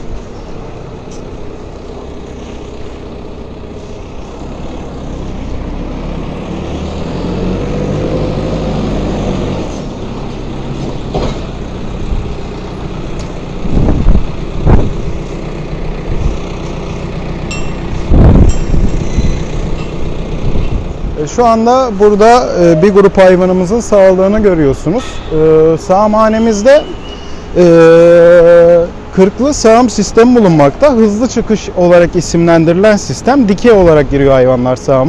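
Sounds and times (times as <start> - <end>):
tractor engine running: 0.0 - 35.0
loud low thumps: 13.7 - 15.2.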